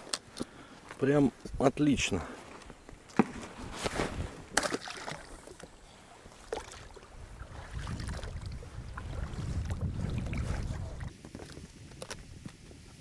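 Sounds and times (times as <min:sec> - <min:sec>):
water moving around a boat: 0:03.2 - 0:11.6
decoy splashing onto water: 0:04.5 - 0:05.6.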